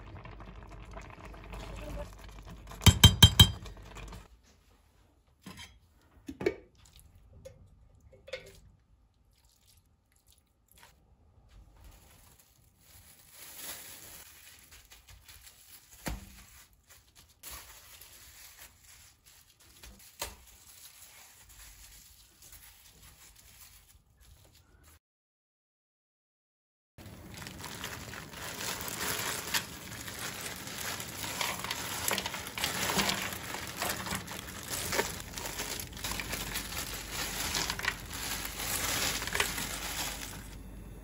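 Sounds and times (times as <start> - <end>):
metal spoon knocking a pot: 2.8 - 3.7.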